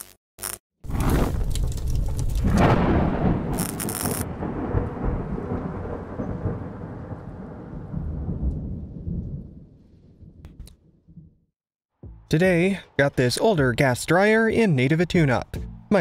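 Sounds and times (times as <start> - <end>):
deep thunder-like rumble: 0.9 - 11.4.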